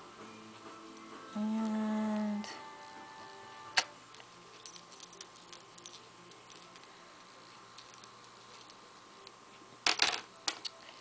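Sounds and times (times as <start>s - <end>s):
small metal parts clinking: 3.8s - 8.8s, 9.8s - 10.7s.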